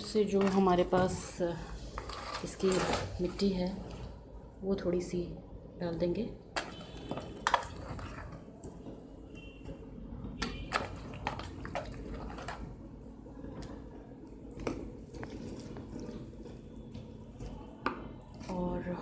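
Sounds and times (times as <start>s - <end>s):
damp soil squelching and rustling: 15.0s - 17.7s.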